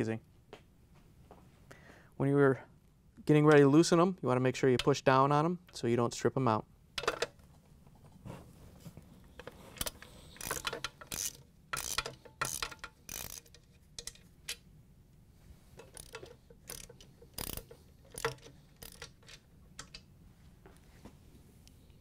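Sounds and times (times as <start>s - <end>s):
ratchet clicking: 9.8s - 14.6s, 15.8s - 20.0s.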